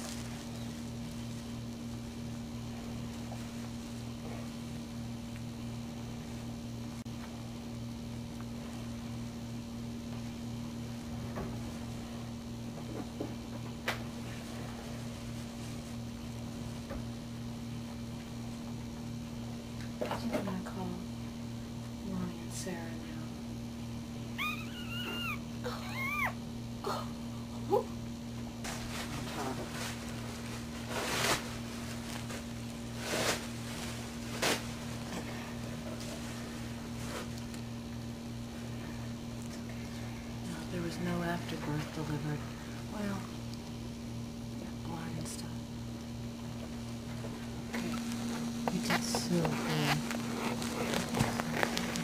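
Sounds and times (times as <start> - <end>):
towels and bedding rustling: 0.0 - 1.6, 28.6 - 37.3, 47.4 - 52.0
low mechanical hum: 0.0 - 52.0.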